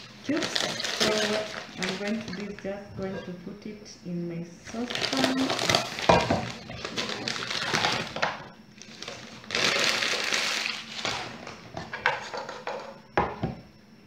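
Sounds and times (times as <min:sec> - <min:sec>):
bag rustling and crinkling: 0:00.0 - 0:02.7, 0:04.7 - 0:12.6.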